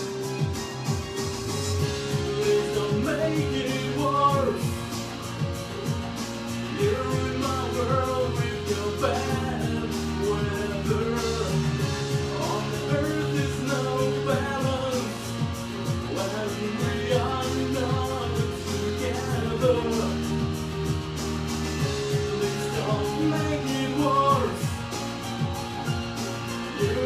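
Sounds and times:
electronic beat: 0.0 - 27.0
electronic keyboard melody: 0.0 - 27.0
synth bass: 0.0 - 27.0
man singing: 1.8 - 5.2, 6.6 - 20.7, 21.8 - 25.2, 26.6 - 27.0.

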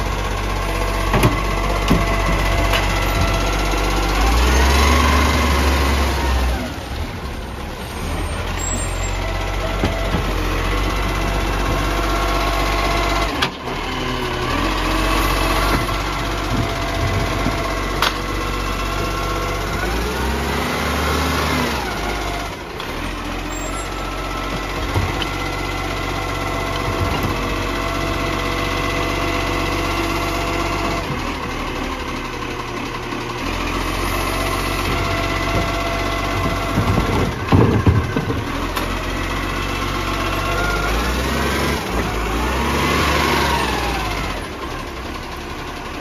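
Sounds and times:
garbage truck engine running: 0.0 - 46.0.

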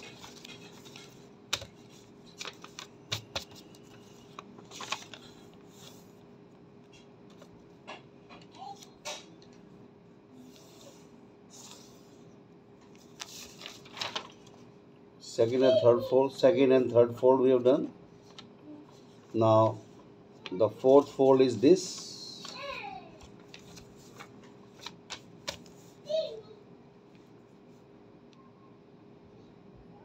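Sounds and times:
paper folding and crinkling: 0.0 - 6.1, 12.8 - 14.7, 20.4 - 25.9
faint steady hum: 0.0 - 30.0.

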